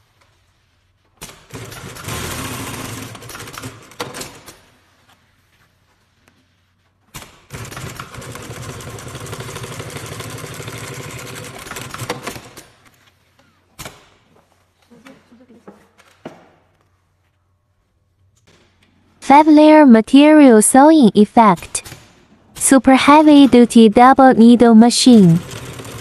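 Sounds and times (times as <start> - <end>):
industrial sewing machine stitching: 1.5 - 4.1, 7.5 - 12.6, 25.4 - 26.0.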